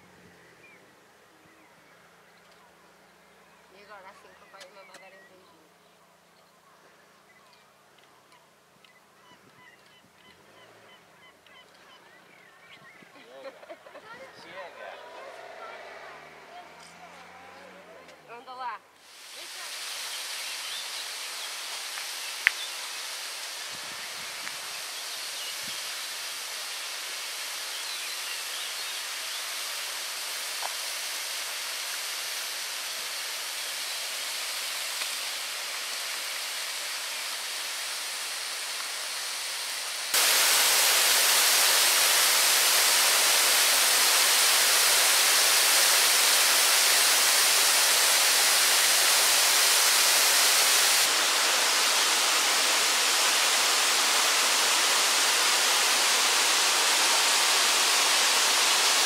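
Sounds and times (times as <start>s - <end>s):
waterfall rushing: 19.0s - 59.0s.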